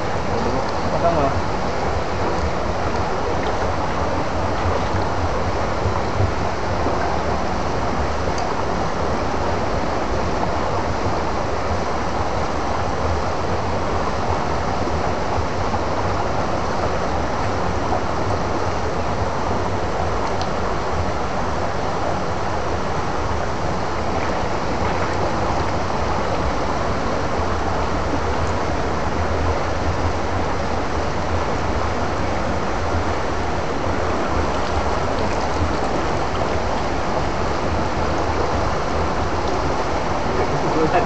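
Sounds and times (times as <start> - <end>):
stream water rushing: 0.0 - 41.0.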